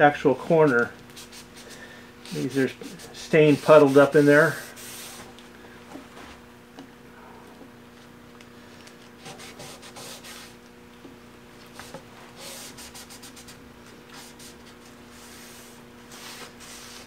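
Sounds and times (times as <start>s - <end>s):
faint steady hum: 0.0s - 17.0s
cloth rag scrubbing wood: 0.6s - 5.3s, 9.2s - 10.6s, 14.1s - 17.0s.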